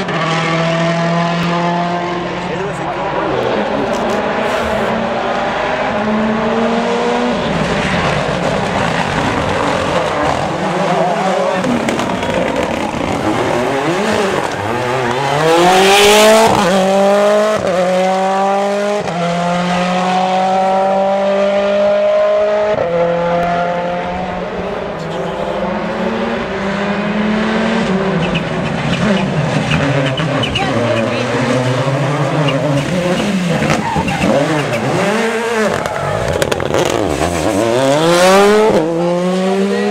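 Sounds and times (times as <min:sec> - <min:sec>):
rally car engine accelerating: 0:00.0 - 0:39.9.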